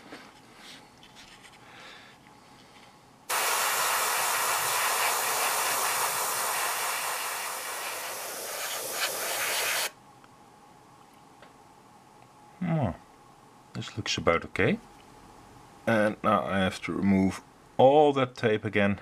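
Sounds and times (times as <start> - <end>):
airbrush hissing: 3.3 - 10.0.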